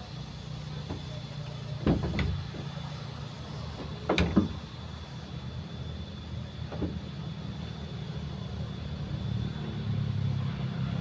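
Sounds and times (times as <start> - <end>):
road traffic rumble: 0.0 - 11.0
short knocks: 0.8 - 4.8, 6.7 - 7.2.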